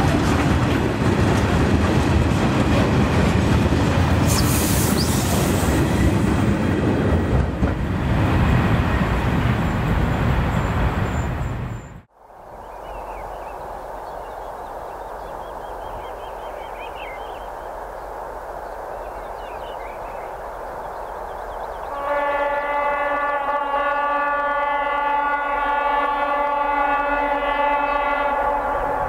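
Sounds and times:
freight train rumbling past: 0.0s - 29.0s
birds chirping: 9.4s - 22.2s
train horn blast: 21.9s - 29.0s.

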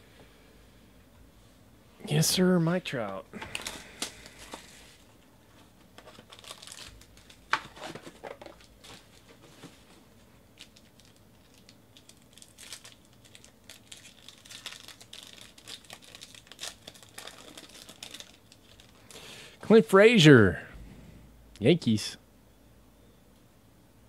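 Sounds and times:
foil wrapper crinkling and tearing: 6.0s - 9.3s, 10.5s - 19.2s.

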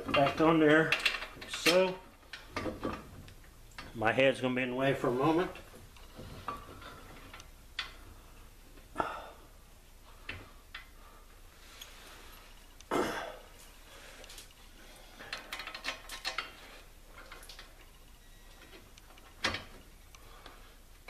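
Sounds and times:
metal clinks and clanks: 15.3s - 18.1s.

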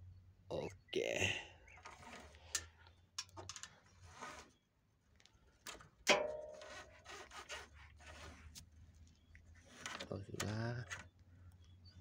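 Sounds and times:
dipstick clicking and scraping: 1.8s - 4.5s, 5.2s - 11.2s
sharp metallic clack: 6.1s - 6.7s.

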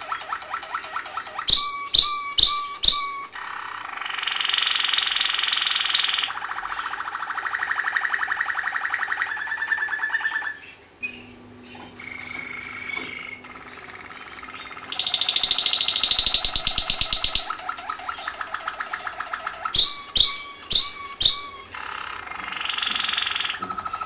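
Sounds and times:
canary singing trills: 0.0s - 24.0s.

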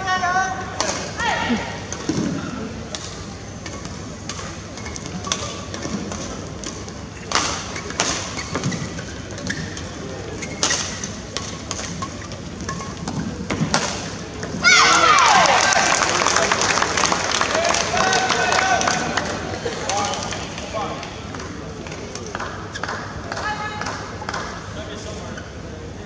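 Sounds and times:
indoor arena background: 0.0s - 26.0s
rackets hitting shuttlecock: 1.8s - 15.8s.

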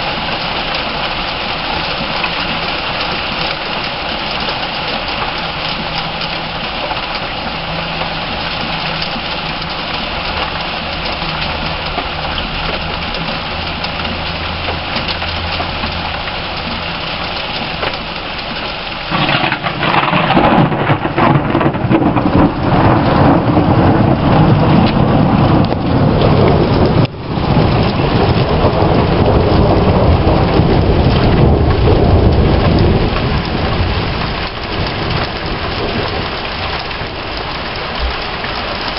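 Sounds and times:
heavy rain falling: 0.0s - 38.9s
rolling thunder rumble: 19.0s - 38.9s.

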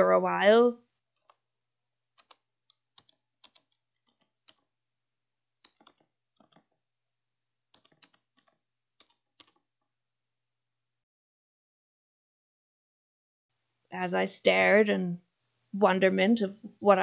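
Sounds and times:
computer keyboard keystrokes: 1.2s - 1.4s, 2.1s - 4.7s, 5.6s - 6.8s, 7.7s - 9.7s.

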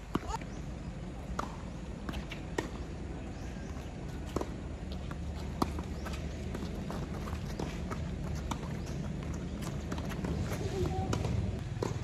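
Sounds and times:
tennis ball hit by rackets: 1.3s - 2.9s, 9.8s - 12.0s.

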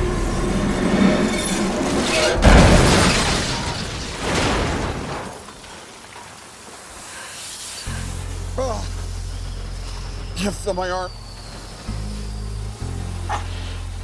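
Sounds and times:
debris scraping and settling: 1.4s - 7.1s
glass shattering: 2.0s - 5.7s.

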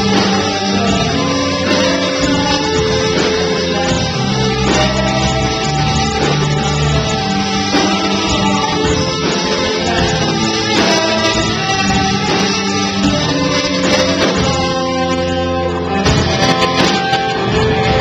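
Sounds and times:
bass guitar: 0.0s - 18.0s
drum hits: 0.0s - 18.0s
electric guitar: 0.0s - 18.0s.

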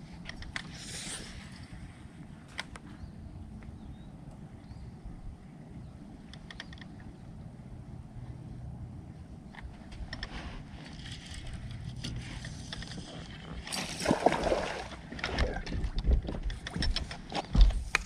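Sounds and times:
low steady hum: 0.0s - 18.0s
wind: 0.0s - 18.0s
water noise: 12.4s - 15.7s
fish splashing: 13.7s - 15.1s.

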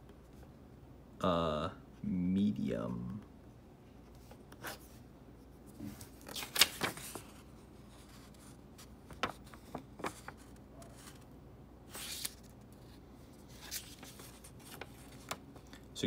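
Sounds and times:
paper card rustling: 5.7s - 11.3s, 11.9s - 16.0s.

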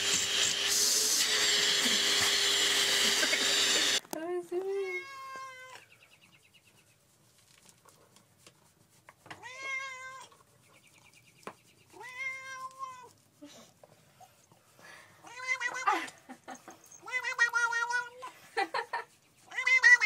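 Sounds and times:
cat meowing: 4.8s - 5.9s, 9.4s - 10.4s, 11.9s - 13.1s, 15.2s - 16.0s, 17.0s - 18.3s, 19.5s - 20.0s.

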